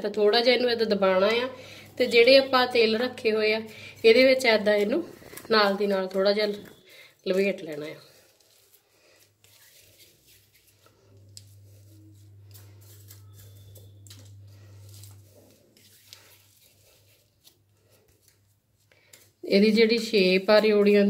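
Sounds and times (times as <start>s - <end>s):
plastic sheet crinkling: 3.6s - 21.0s
low steady hum: 10.6s - 17.2s.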